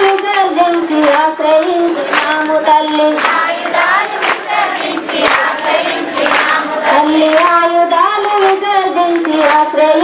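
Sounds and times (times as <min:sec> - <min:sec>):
woman singing into a microphone: 0:00.0 - 0:03.3, 0:06.7 - 0:10.0
hand clapping: 0:00.0 - 0:10.0
women singing together: 0:00.0 - 0:10.0.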